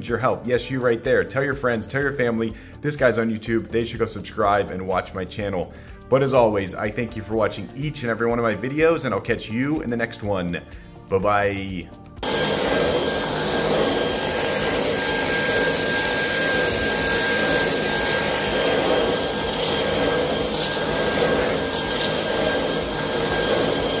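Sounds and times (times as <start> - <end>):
cordless vacuum running: 12.2 - 24.0.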